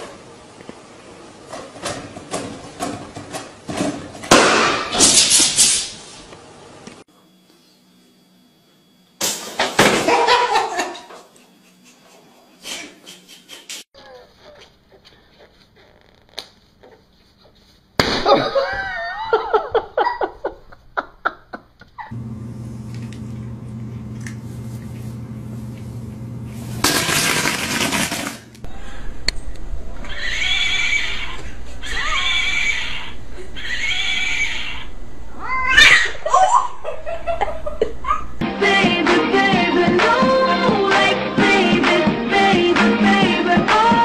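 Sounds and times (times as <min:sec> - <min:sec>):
cats meowing and yowling: 0:30.0 - 0:36.6.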